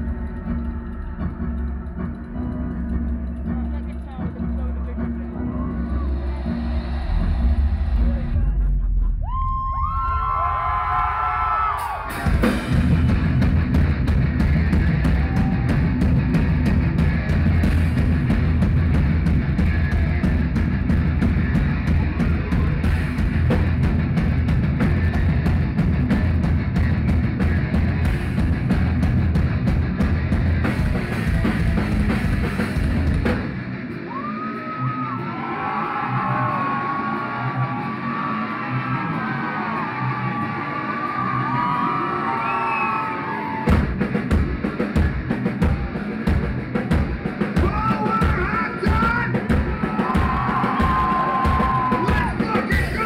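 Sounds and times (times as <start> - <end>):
heavy metal band playing live: 11.4 - 53.0.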